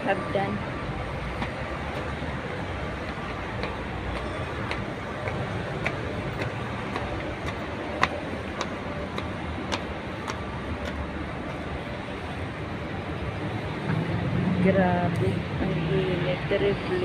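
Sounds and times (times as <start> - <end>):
city traffic rumble: 0.0 - 17.0
footsteps on stone steps: 0.9 - 12.1.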